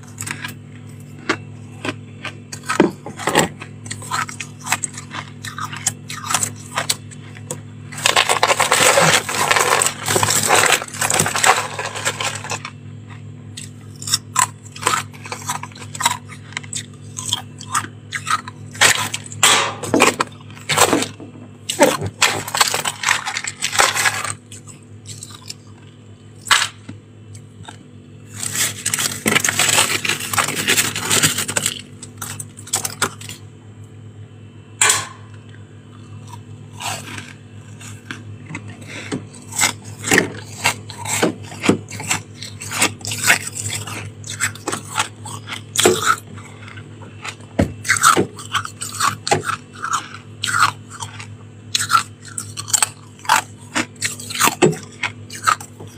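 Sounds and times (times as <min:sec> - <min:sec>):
frost crunching in mouth: 0:00.0 - 0:33.5, 0:35.4 - 0:55.9
frost being scraped: 0:28.3 - 0:33.0.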